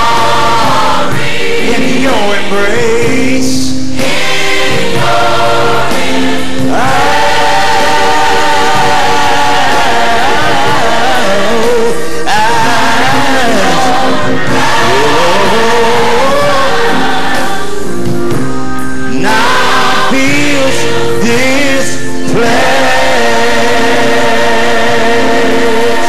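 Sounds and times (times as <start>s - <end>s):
choir singing: 0.0s - 18.4s, 19.0s - 26.0s
man singing into a microphone: 1.6s - 3.7s, 11.1s - 16.8s, 20.1s - 22.5s.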